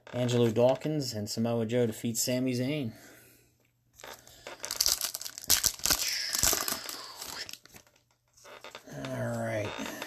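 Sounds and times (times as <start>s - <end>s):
foil wrapper crinkling and tearing: 4.0s - 7.9s.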